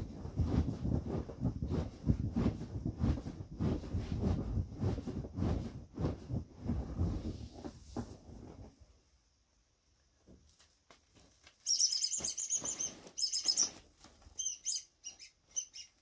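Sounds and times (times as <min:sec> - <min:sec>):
inflatable vinyl toys squeaking: 0:11.6 - 0:16.0.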